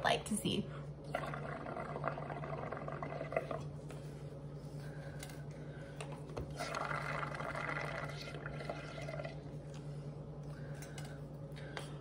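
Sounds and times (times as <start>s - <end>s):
blowing bubbles through a straw: 1.1s - 3.7s, 6.5s - 9.5s.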